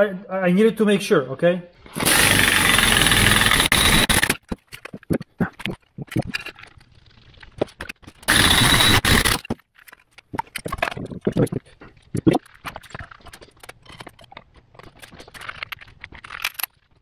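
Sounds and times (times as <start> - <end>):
air impact wrench running: 1.9 - 4.4, 8.3 - 9.4.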